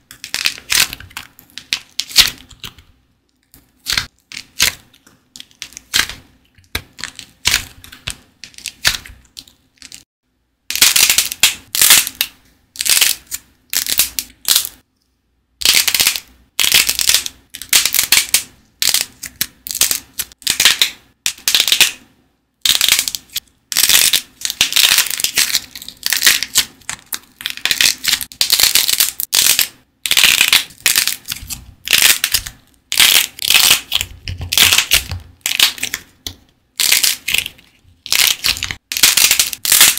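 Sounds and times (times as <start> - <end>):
hardened coating cracking: 22.6 - 39.9.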